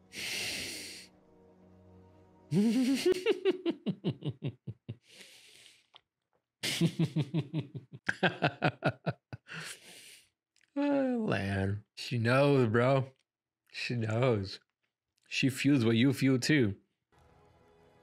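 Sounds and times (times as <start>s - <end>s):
sharp breath: 0.0s - 1.1s, 5.1s - 5.8s, 9.5s - 10.2s
man giggling: 2.5s - 5.0s, 6.6s - 9.8s.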